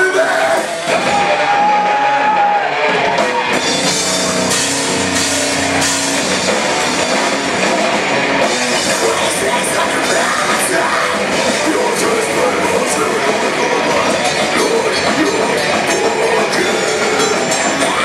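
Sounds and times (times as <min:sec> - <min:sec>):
bass guitar: 0:00.0 - 0:18.0
electric guitars: 0:00.0 - 0:18.0
drum kit with cymbals: 0:02.9 - 0:18.0
person singing: 0:08.8 - 0:18.0.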